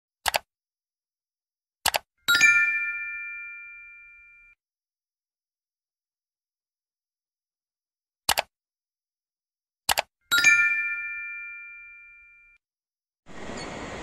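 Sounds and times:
mouse double clicks: 0:00.2 - 0:00.5, 0:08.3 - 0:08.5, 0:09.9 - 0:10.1
bell-like notification ding: 0:02.3 - 0:04.6, 0:10.3 - 0:12.6.

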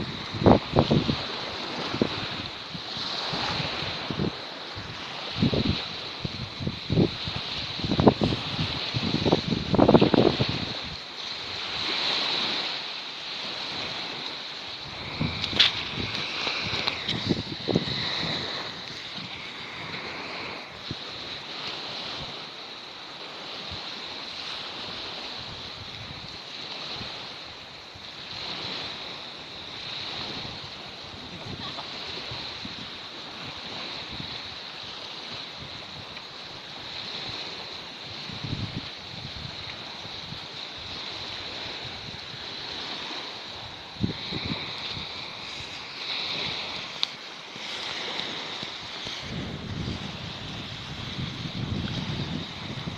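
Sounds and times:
wind gusting on microphone: 0:00.0 - 0:22.6, 0:23.2 - 0:52.9
waves washing on sand: 0:00.0 - 0:52.9.

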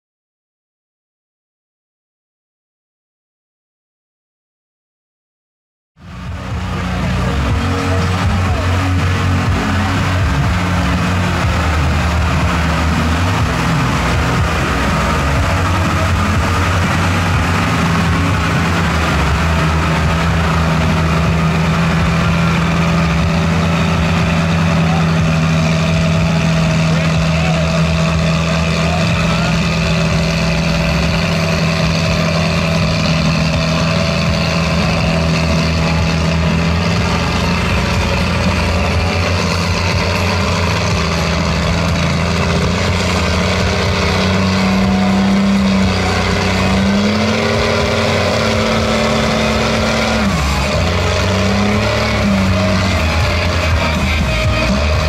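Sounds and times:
truck engine running: 0:06.0 - 0:55.0
tyres churning through mud: 0:06.1 - 0:55.0.

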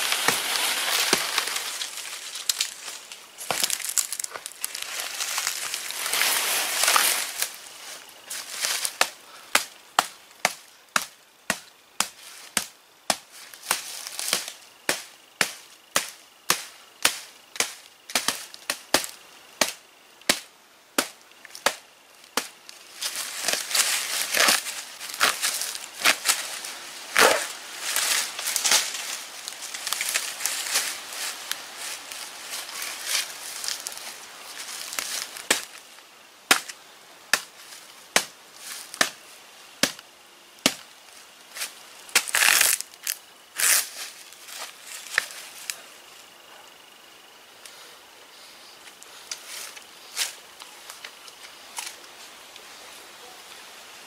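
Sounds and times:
axe chopping wood: 0:09.0 - 0:21.8, 0:36.5 - 0:37.5, 0:38.1 - 0:39.2, 0:39.8 - 0:40.0, 0:40.6 - 0:40.9.

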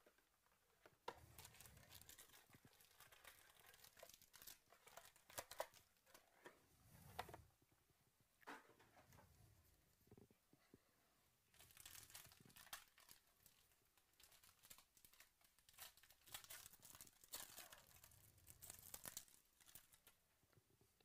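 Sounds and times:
foil wrapper crinkling and tearing: 0:01.4 - 0:06.2, 0:11.6 - 0:20.2.

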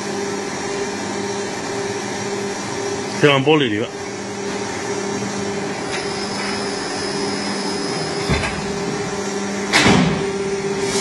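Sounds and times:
loud thud with hiss: 0:09.7 - 0:11.0.

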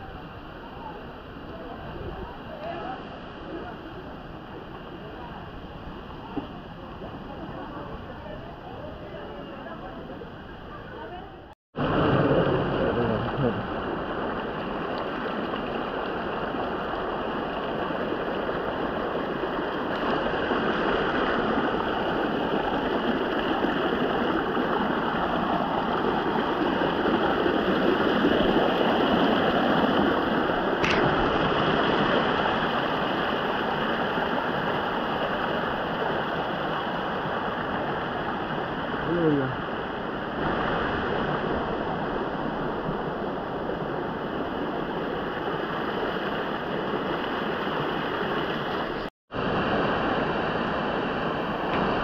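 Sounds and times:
water rushing down rocks: 0:11.8 - 0:52.0.

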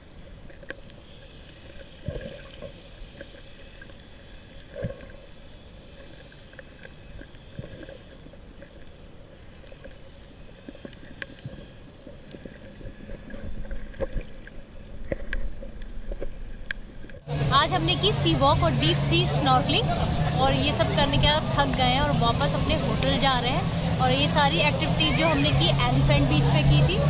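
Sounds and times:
muffled underwater water wash: 0:00.0 - 0:27.0.

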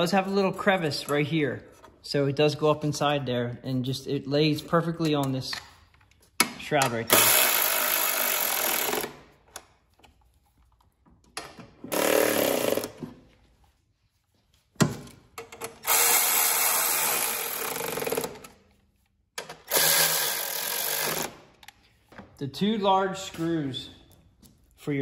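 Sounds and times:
electric ratchet running: 0:07.1 - 0:09.1, 0:11.9 - 0:12.9, 0:15.8 - 0:18.4, 0:19.7 - 0:21.4.

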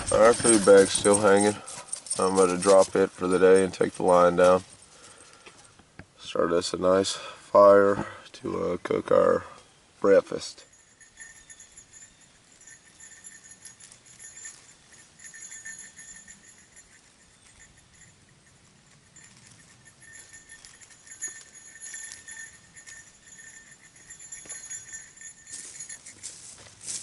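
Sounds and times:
small bell jingling faintly: 0:00.0 - 0:05.8, 0:08.8 - 0:27.0.

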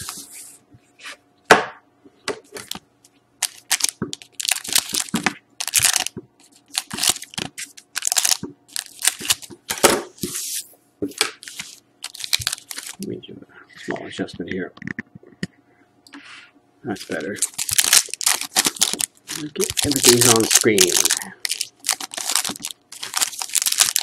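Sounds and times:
foil wrappers crinkling: 0:03.4 - 0:09.6, 0:11.4 - 0:13.1, 0:16.9 - 0:24.0
scissors snipping foil packs: 0:17.1 - 0:24.0.

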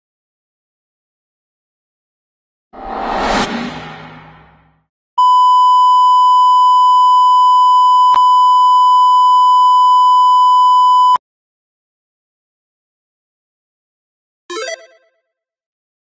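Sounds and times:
noisy sound: 0:02.8 - 0:04.8.

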